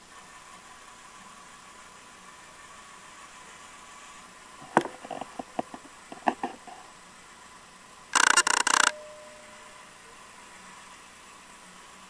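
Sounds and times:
model locomotive diesel idling: 0.1 - 12.0
sharp clicks and knocks: 4.6 - 6.9, 8.2 - 9.2.

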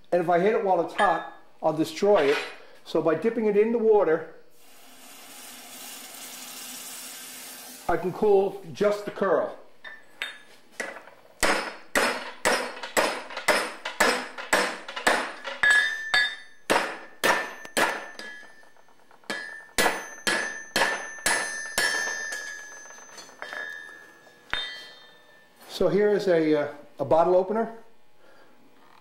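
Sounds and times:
hammer striking on anvil: 9.9 - 25.4
anvil ringing: 11.4 - 25.6.

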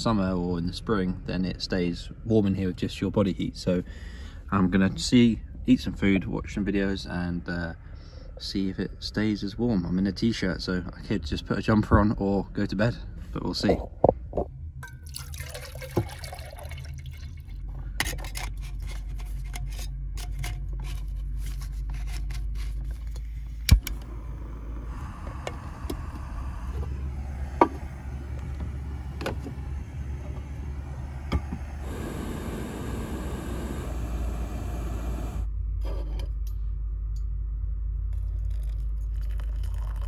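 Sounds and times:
gas burner hum: 23.1 - 35.5
water heating hiss: 24.0 - 35.5.

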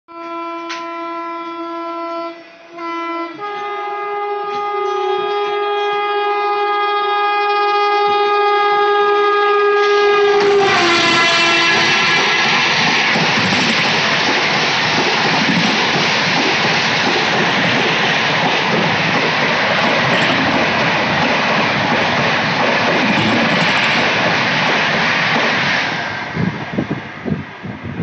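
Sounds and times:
locomotive horn blasts: 0.1 - 12.2
train coaches rushing and clattering: 3.4 - 28.0.

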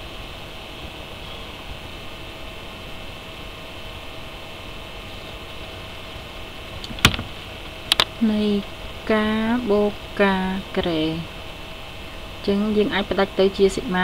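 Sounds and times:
electrical hum and hiss: 0.0 - 14.0
sharp click: 6.8 - 8.1.

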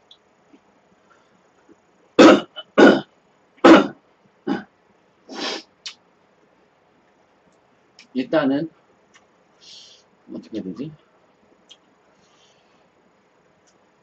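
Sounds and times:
man coughing: 2.2 - 4.6.

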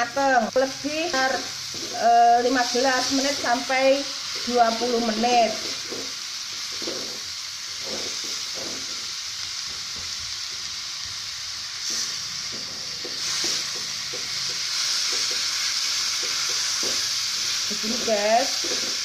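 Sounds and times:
food sizzling in a wok: 0.0 - 19.0.

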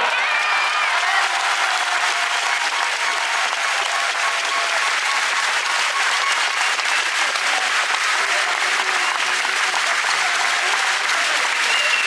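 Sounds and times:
crowd applauding: 0.0 - 12.0.

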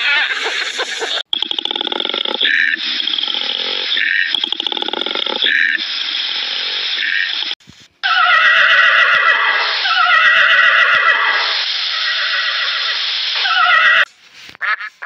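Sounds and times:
horse whinnying: 8.0 - 14.1
koala bellowing: 8.0 - 14.8.

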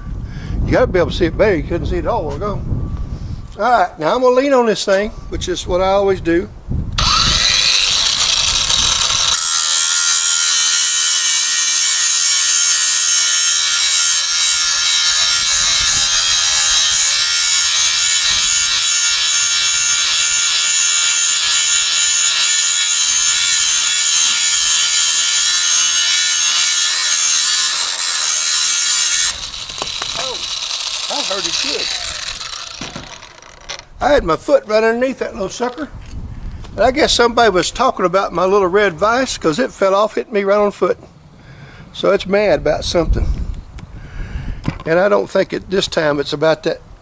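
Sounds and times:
angle grinder grinding steel: 7.0 - 34.0.

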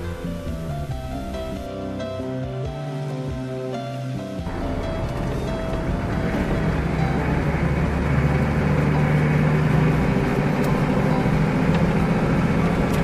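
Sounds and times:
low engine hum: 0.0 - 13.0
road and tyre noise: 0.0 - 13.0.

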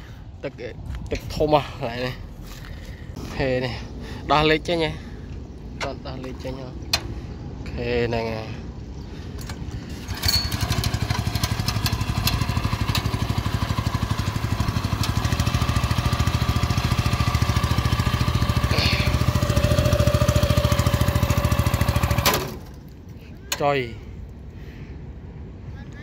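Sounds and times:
small engine chugging: 9.4 - 22.8.

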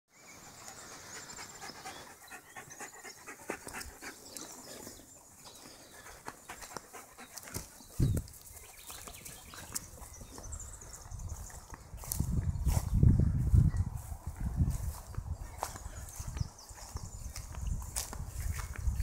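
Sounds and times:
dog panting: 0.4 - 8.0
footsteps on dry grass: 5.5 - 19.0.

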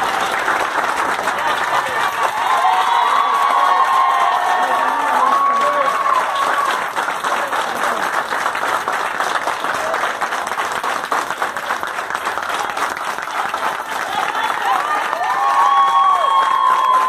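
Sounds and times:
people applauding: 0.0 - 17.0.

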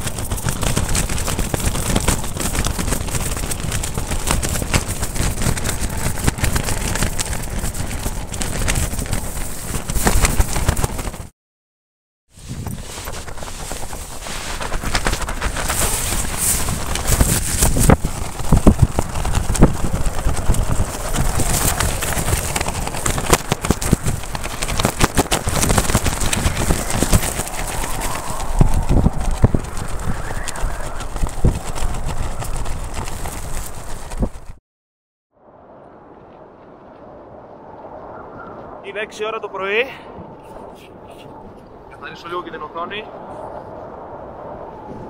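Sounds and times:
strong wind buffeting microphone: 0.0 - 11.3, 12.4 - 34.6, 35.4 - 45.0
tent fabric flapping: 0.0 - 11.3, 12.3 - 34.6.

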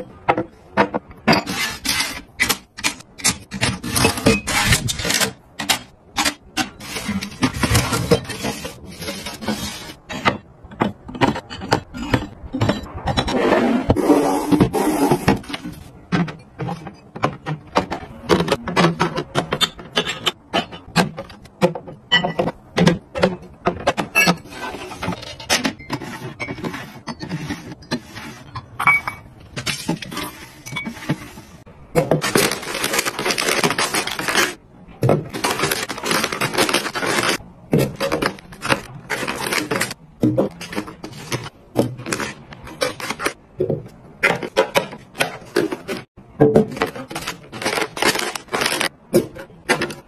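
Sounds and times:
handling noise: 29.6 - 50.0.

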